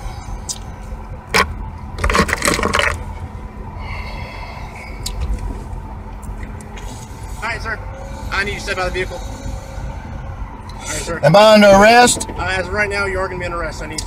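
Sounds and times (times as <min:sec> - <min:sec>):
low vehicle rumble: 0:00.0 - 0:14.0.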